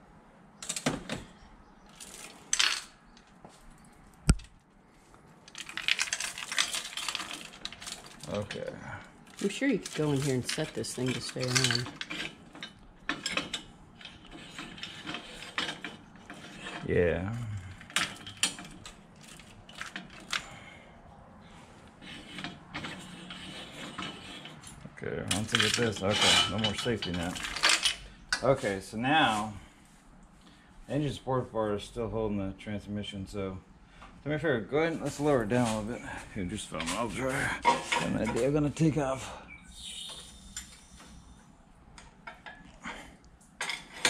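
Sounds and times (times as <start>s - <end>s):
steel chain clinking and rattling: 1.9s - 3.0s, 5.4s - 17.0s, 17.7s - 20.6s, 22.0s - 28.0s.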